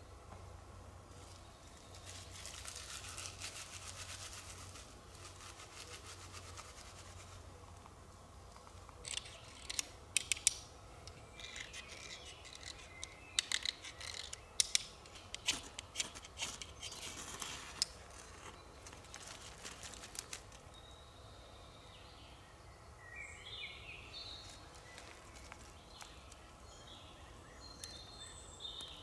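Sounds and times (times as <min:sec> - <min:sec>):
knife scraping: 0:11.3 - 0:14.4.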